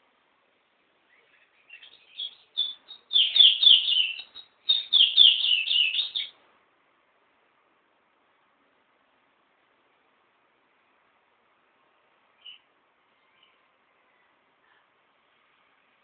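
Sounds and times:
songbird chirping: 0:00.6 - 0:06.4, 0:11.6 - 0:16.0.

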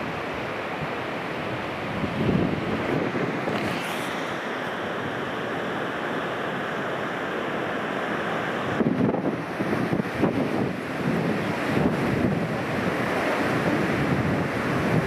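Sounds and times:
wind buffeting microphone: 0:00.0 - 0:04.3, 0:08.7 - 0:15.0
strong wind: 0:00.0 - 0:15.0
waves breaking on shore: 0:00.0 - 0:15.0.

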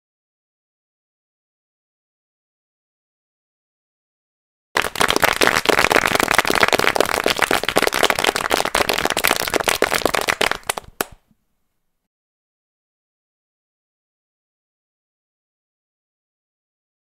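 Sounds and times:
dense crackling pops: 0:04.8 - 0:11.2.

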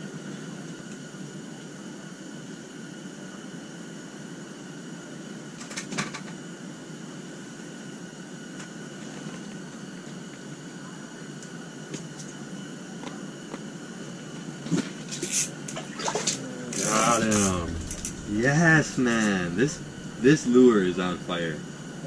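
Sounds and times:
propane heater hissing: 0:16.6 - 0:22.0.

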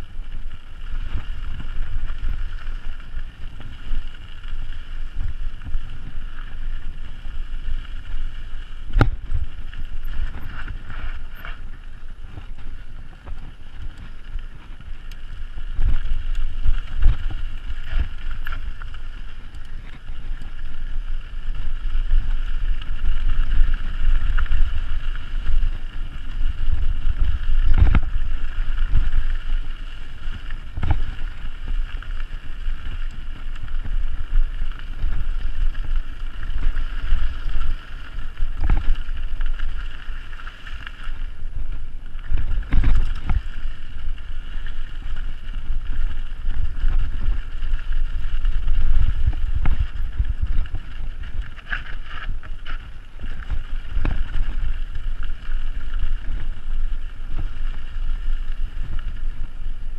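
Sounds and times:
mountain bike rumbling on trail: 0:00.0 - 0:59.9
bike knocking over rocks: 0:08.0 - 0:56.6
wind buffeting microphone: 0:08.8 - 0:29.4, 0:30.4 - 0:31.4, 0:41.5 - 0:56.6.

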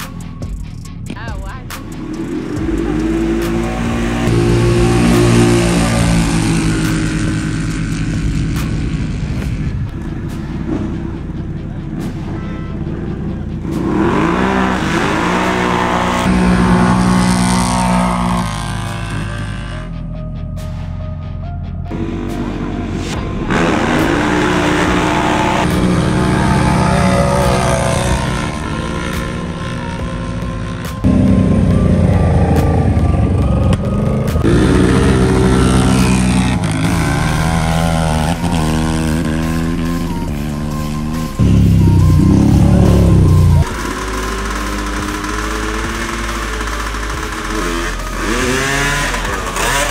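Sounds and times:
atv engine revving hard: 0:02.2 - 0:09.4, 0:13.6 - 0:19.9, 0:23.4 - 0:32.4, 0:34.1 - 0:49.9.

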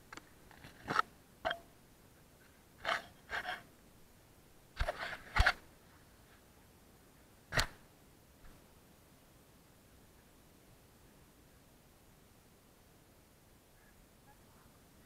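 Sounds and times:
camera handling scrapes and knocks: 0:02.8 - 0:03.6, 0:04.8 - 0:05.6.

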